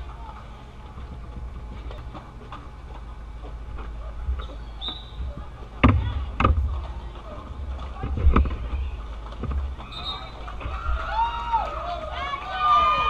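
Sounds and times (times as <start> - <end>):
faint voices: 0.0 - 13.0
low rink rumble: 0.0 - 13.0
sharp thumps: 5.2 - 7.1.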